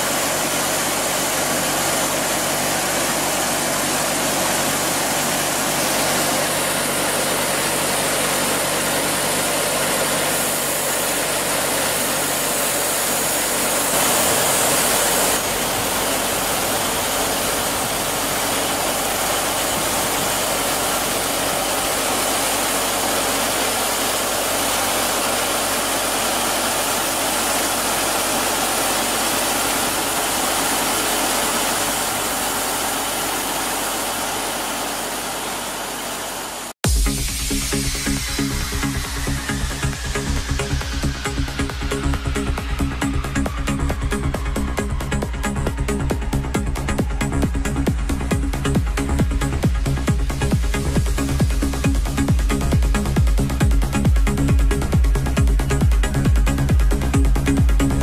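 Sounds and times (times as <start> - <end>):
saw cutting hiss: 0.0 - 41.2
sawmill machinery drone: 0.0 - 58.0.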